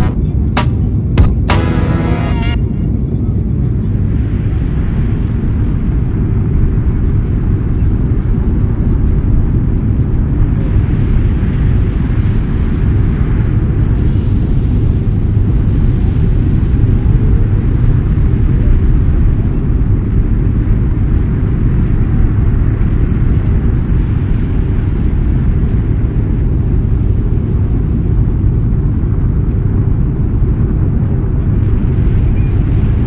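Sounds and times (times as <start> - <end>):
rushing air: 0.0 - 3.2
jet engines rumbling in cabin: 0.0 - 33.0.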